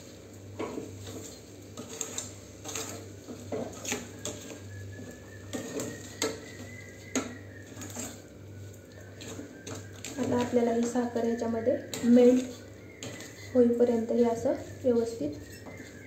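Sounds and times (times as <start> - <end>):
spatula scraping metal pan: 1.0 - 4.6.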